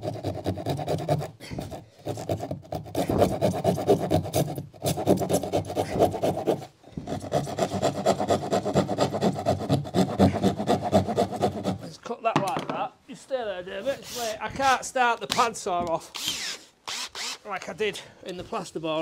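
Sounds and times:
hand saw rasping through board: 0.0 - 12.0.

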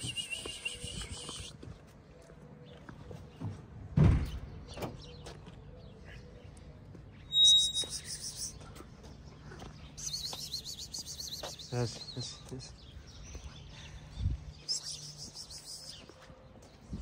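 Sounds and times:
birds chirping: 0.0 - 17.0
dull thump: 4.0 - 4.4.

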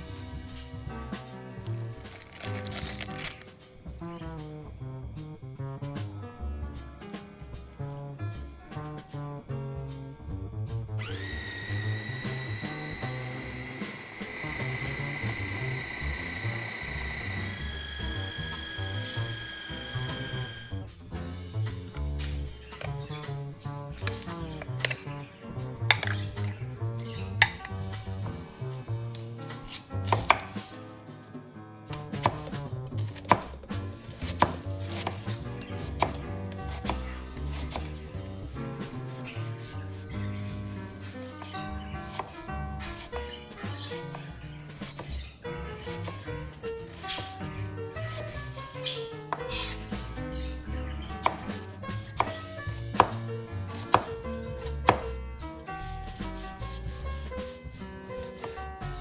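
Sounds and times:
knife chopping on cutting board: 29.7 - 30.7, 31.9 - 38.0, 41.4 - 43.2, 43.9 - 45.2, 45.8 - 46.2, 48.1 - 48.4, 49.2 - 49.8, 51.0 - 55.2, 58.2 - 58.6.

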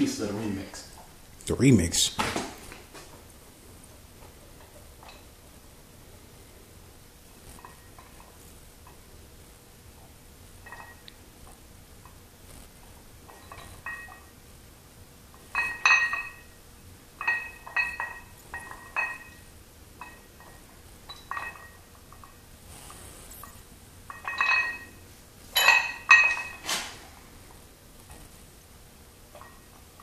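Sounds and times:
weight plates clinking: 10.6 - 11.1, 13.3 - 14.3, 15.4 - 16.6, 17.2 - 22.4, 24.1 - 26.7.

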